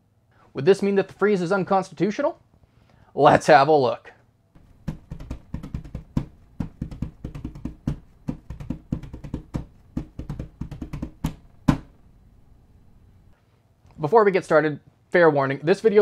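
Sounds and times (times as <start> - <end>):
percussion intro music: 4.6 - 12.0.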